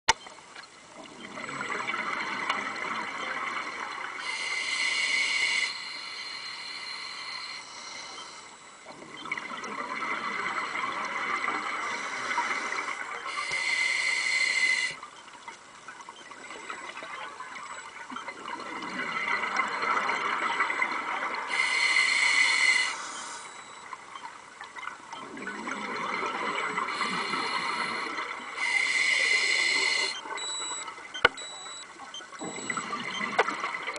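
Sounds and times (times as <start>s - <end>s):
diver breathing through regulator: 4.2s - 8.6s, 11.9s - 15.0s, 21.5s - 23.7s, 26.9s - 30.2s.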